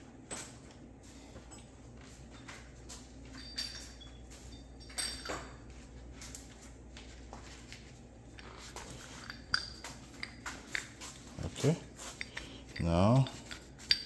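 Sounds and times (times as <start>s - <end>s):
metallic clinks: 2.3s - 5.7s, 8.4s - 14.0s.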